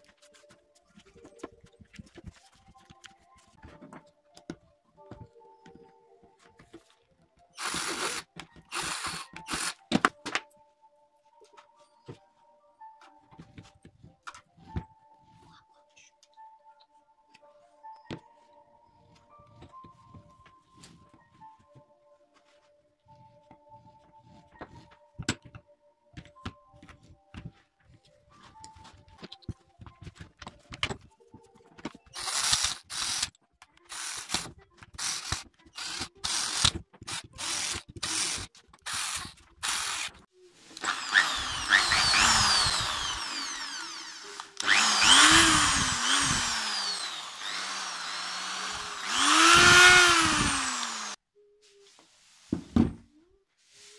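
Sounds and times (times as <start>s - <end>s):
drill trigger blips: 7.6s - 9.8s, 40.8s - 51.2s
electric drill motor spinning: 7.6s - 9.8s, 32.1s - 33.3s, 33.9s - 34.4s, 35.0s - 40.2s, 40.8s - 51.2s.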